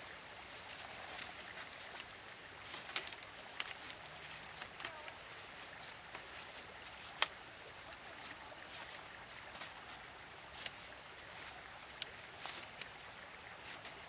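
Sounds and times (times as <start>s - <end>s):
bamboo strips clicking: 1.1s - 10.9s, 11.8s - 13.0s.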